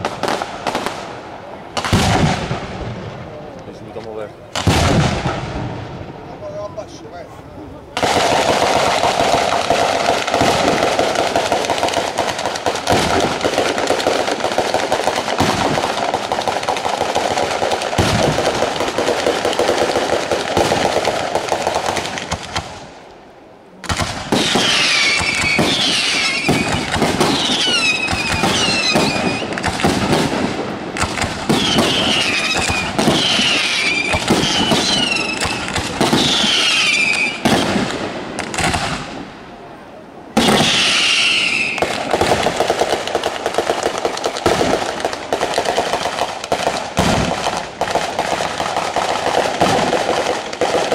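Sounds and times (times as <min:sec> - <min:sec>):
rattle of firecrackers: 0:08.0 - 0:23.1, 0:23.8 - 0:39.2, 0:40.4 - 0:50.9
fireworks shells bursting: 0:23.8 - 0:39.2, 0:40.4 - 0:50.9.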